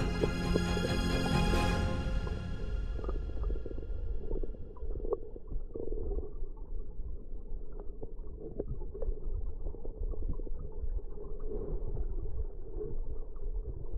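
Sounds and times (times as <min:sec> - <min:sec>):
muffled underwater river rush: 0:00.0 - 0:13.9.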